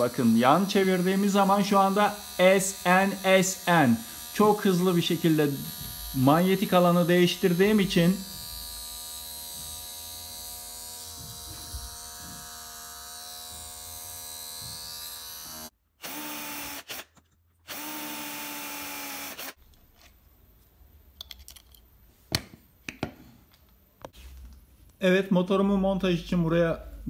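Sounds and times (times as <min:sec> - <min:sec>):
small electric motor whining: 0:00.5 - 0:06.8, 0:07.7 - 0:17.1, 0:17.7 - 0:19.6.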